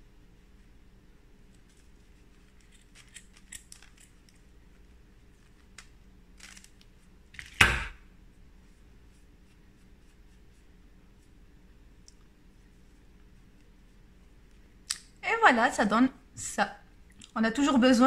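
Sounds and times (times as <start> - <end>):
faint yarn rustling: 8.3 - 14.8.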